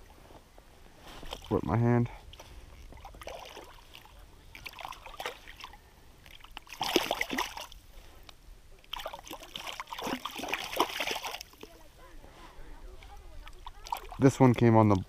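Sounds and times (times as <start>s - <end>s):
water splashing: 2.3s - 7.9s, 8.8s - 12.0s, 13.1s - 15.0s
fish thrashing at surface: 8.9s - 11.6s.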